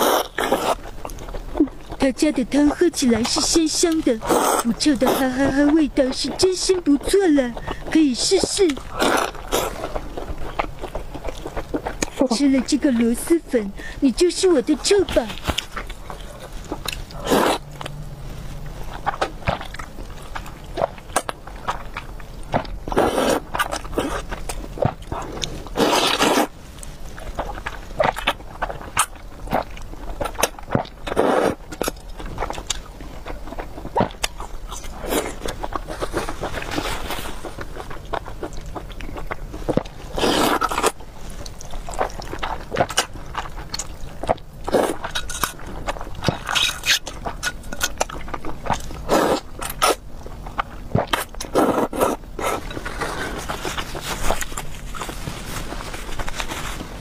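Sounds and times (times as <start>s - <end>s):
noodle slurps: 0.0s - 0.9s, 4.1s - 5.8s, 8.6s - 10.1s, 14.9s - 17.7s, 22.9s - 26.5s, 31.0s - 31.9s, 40.1s - 43.1s, 44.6s - 45.5s, 49.0s - 50.0s, 51.0s - 55.2s
wet chewing and mouth smacks: 0.0s - 13.1s, 14.5s - 18.0s, 18.6s - 56.6s.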